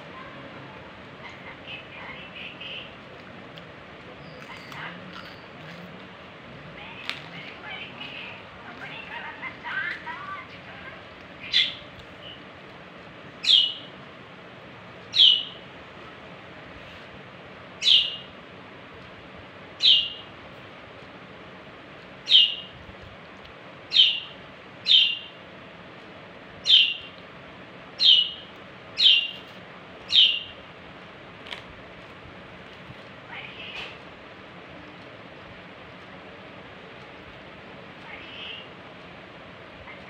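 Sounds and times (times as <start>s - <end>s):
budgerigar chirping: 13.4s - 13.9s, 15.1s - 15.6s, 17.8s - 18.3s, 19.8s - 20.2s, 22.3s - 22.7s, 23.9s - 25.3s, 26.6s - 27.1s, 28.0s - 29.4s, 30.1s - 30.6s.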